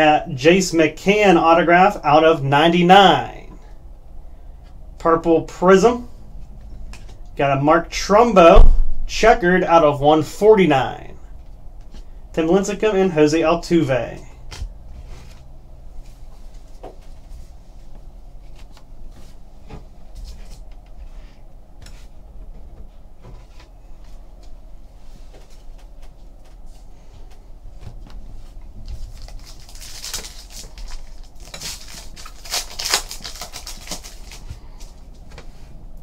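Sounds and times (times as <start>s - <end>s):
foil wrapper tearing and crinkling: 28.9s - 34.9s.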